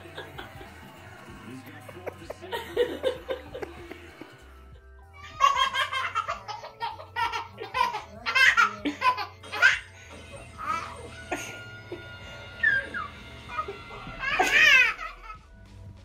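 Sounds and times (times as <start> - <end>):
faint background music: 0.0 - 16.0
baby belly-laughing: 5.2 - 9.9.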